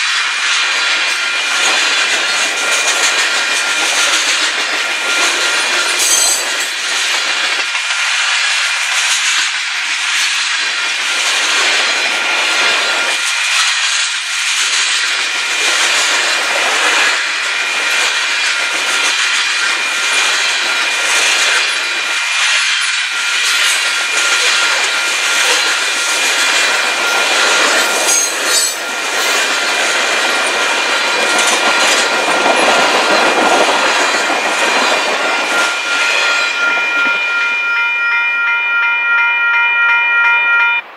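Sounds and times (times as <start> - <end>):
freight train wheels rumbling: 0.0 - 40.9
high ringing tone: 6.0 - 6.6, 34.2 - 40.9
wheel squeals: 23.2 - 29.5, 32.6 - 40.8.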